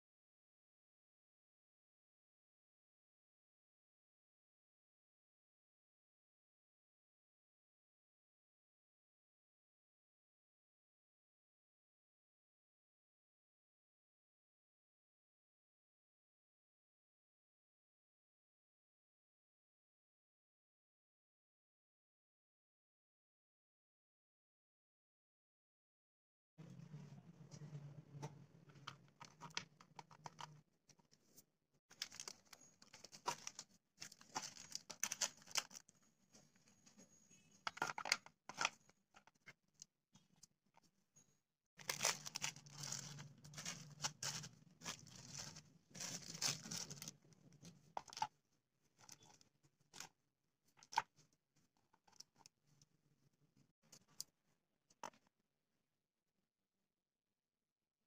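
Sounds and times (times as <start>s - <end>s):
snack wrappers crinkling: 31.9s - 35.8s, 41.8s - 47.2s
packets set on plastic plate: 37.7s - 38.8s, 41.8s - 47.1s.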